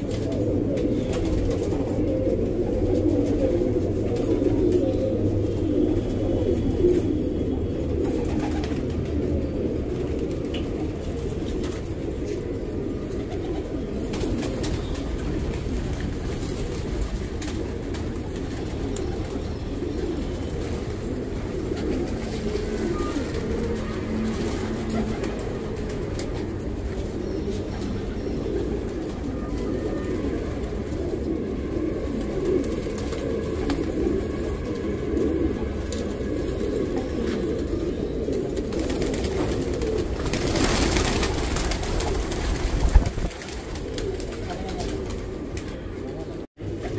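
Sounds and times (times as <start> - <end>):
pigeons cooing: 0.0 - 46.9.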